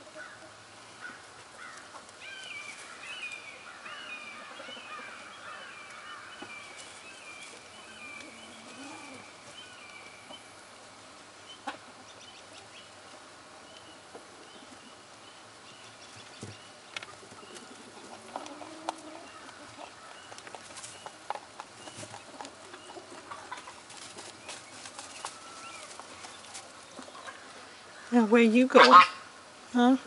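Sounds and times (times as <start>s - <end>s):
faint bird calls: 0.1s - 10.6s, 21.8s - 29.4s
rustling in hay bedding: 1.0s - 18.4s, 21.9s - 28.0s.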